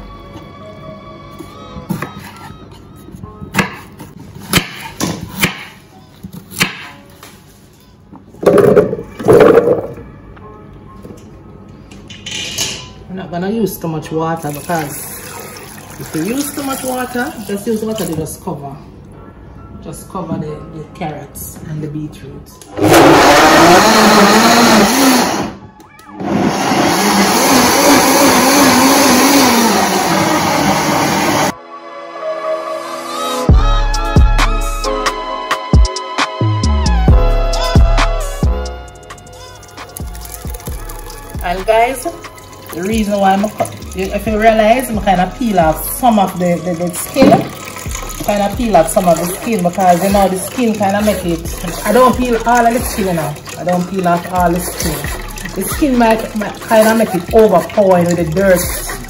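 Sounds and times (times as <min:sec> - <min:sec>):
knife chopping on wooden board: 0:04.5 - 0:05.7
blender running at high speed: 0:22.8 - 0:25.6, 0:26.2 - 0:31.6.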